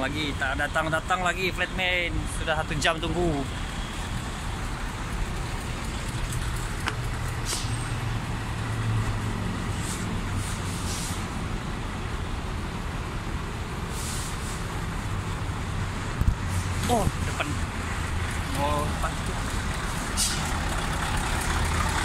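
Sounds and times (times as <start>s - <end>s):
diesel truck engine idling: 0.0s - 16.2s, 16.8s - 22.0s
short hisses: 9.8s - 11.2s, 13.9s - 14.7s, 20.2s - 20.5s.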